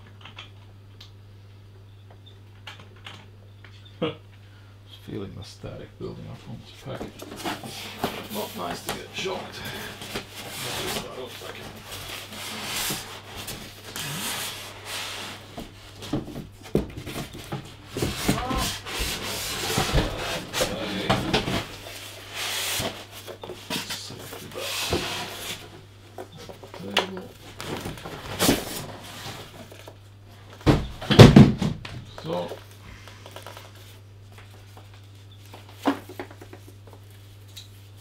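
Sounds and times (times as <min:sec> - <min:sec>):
polystyrene foam squeaking: 0:10.5 - 0:15.5.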